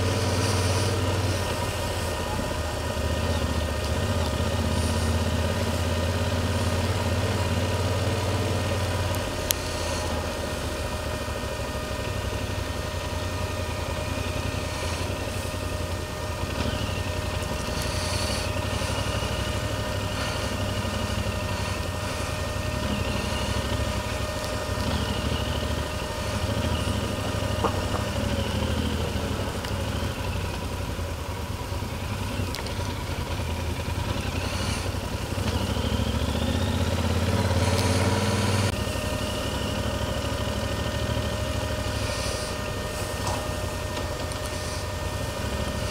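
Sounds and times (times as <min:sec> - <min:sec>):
motorcycle engine running: 0:00.0 - 0:45.9.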